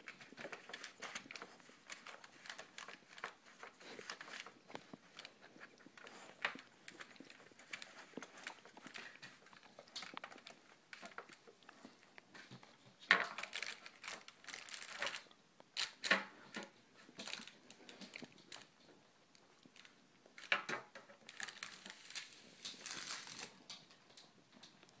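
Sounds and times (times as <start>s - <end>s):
dog chewing cardboard box: 0.0s - 15.3s
wrapping crinkling: 0.0s - 24.8s.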